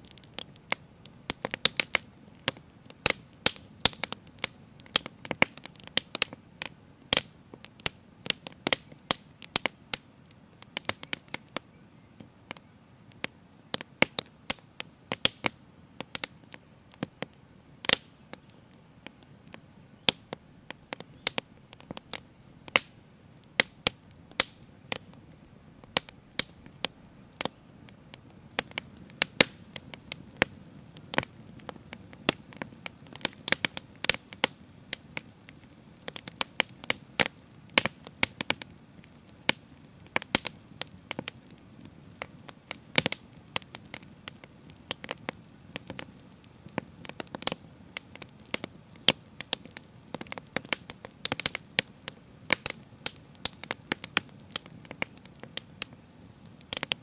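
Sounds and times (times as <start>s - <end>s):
fire crackling and popping: 0.0s - 57.0s.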